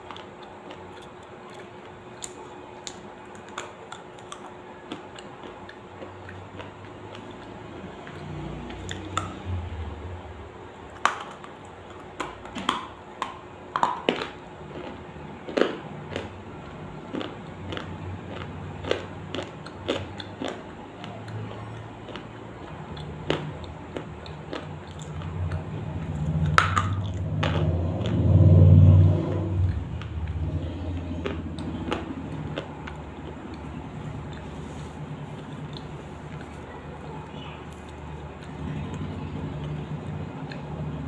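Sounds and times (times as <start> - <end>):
crisp food crunching: 10.9 - 28.3
low rumble: 25.2 - 34.6.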